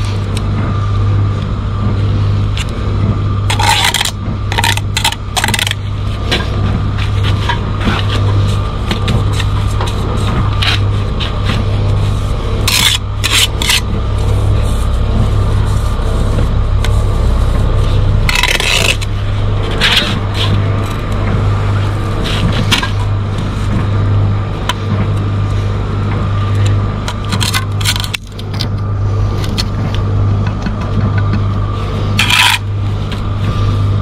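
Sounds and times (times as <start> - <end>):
low mechanical hum: 0.0 - 34.0
trowel scraping mortar: 9.2 - 13.9, 18.3 - 19.1, 32.2 - 32.7.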